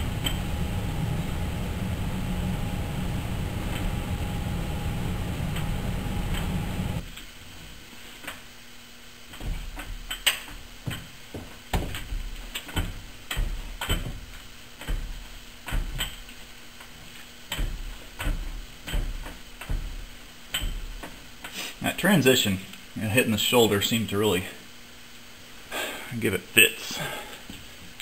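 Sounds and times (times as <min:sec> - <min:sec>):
lathe carriage bumping: 0:00.0 - 0:07.0, 0:17.1 - 0:21.2.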